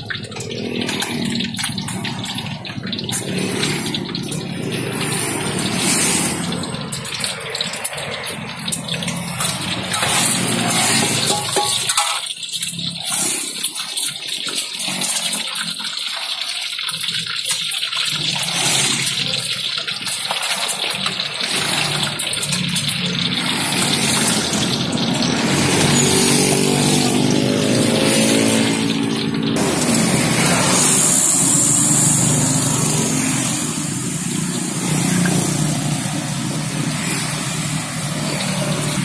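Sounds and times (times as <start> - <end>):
oil sizzling and bubbling: 0.0 - 39.0
engine running: 0.3 - 12.2, 21.4 - 39.0.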